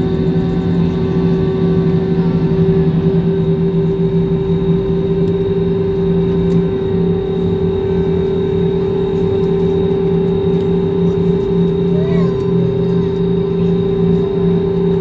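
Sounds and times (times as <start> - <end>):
jet engines humming in cabin: 0.0 - 15.0.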